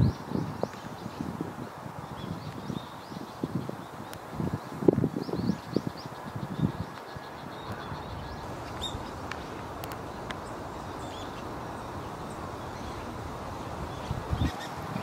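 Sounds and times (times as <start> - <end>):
steady rushing hiss: 0.0 - 15.0
faint clicks: 8.6 - 11.6.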